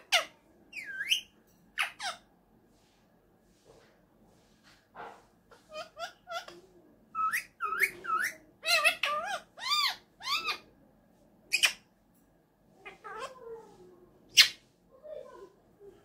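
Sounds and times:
parakeet imitating cat meow: 12.8s - 13.3s.

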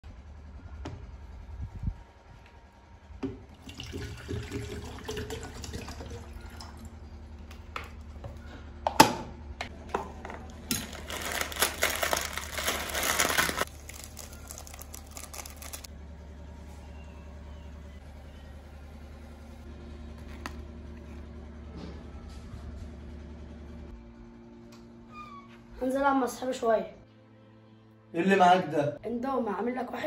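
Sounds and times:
water pouring into kettle: 3.6s - 6.9s
plastic packet crinkling: 10.5s - 15.9s
foil sachet tearing: 10.7s - 15.9s.

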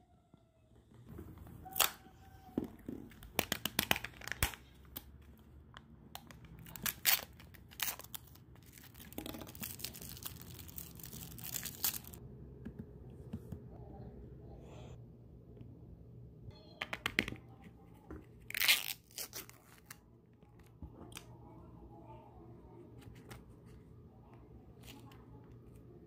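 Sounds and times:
plastic pouch tearing and crinkling: 3.2s - 5.1s, 6.6s - 12.2s, 18.5s - 20.0s.

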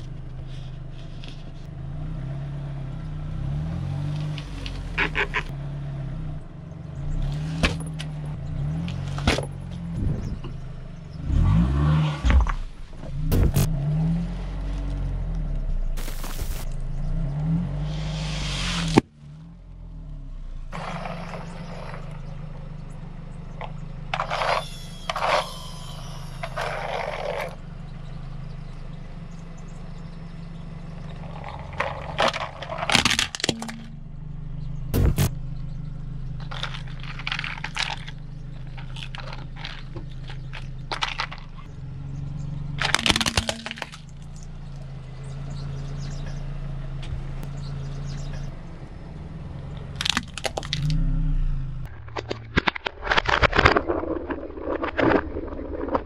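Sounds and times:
car engine humming: 0.0s - 56.0s
plastic toy crunching and snapping: 42.8s - 44.1s, 50.0s - 51.0s, 52.1s - 56.0s.

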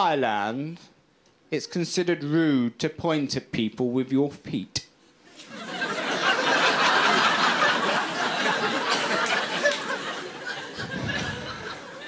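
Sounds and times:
audience laughing: 5.4s - 12.0s.

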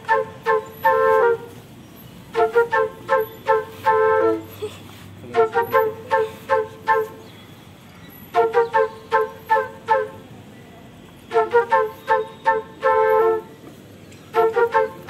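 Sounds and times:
flute playing quick notes: 0.0s - 1.6s, 2.3s - 4.5s, 5.2s - 7.2s, 11.3s - 13.6s, 14.3s - 15.0s.

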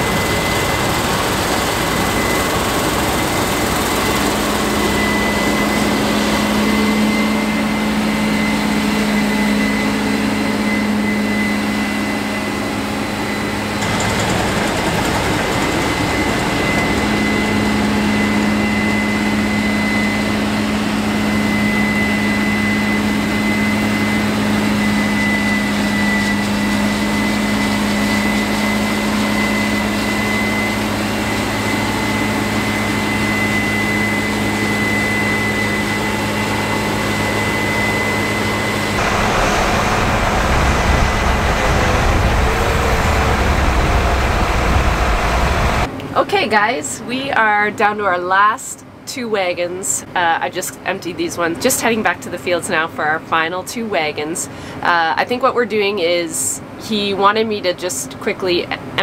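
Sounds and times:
high mechanical whine: 0.0s - 46.0s
combine harvester engine drone: 0.0s - 53.2s.

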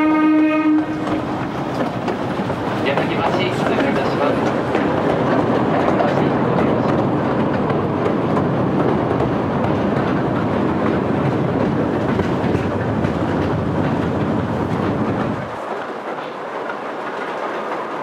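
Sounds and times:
train wheels on rail: 0.0s - 18.0s.

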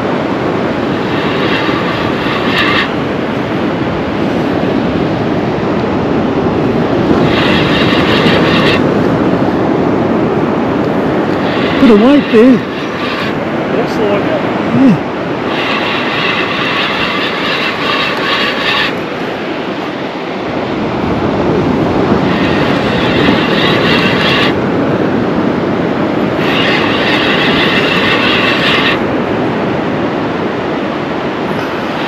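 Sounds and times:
surf: 0.0s - 32.0s
wind hiss: 0.0s - 32.0s
fishing reel gear whine: 0.6s - 3.2s, 7.2s - 8.9s, 11.3s - 14.0s, 14.8s - 19.2s, 22.0s - 24.6s, 26.3s - 29.1s.

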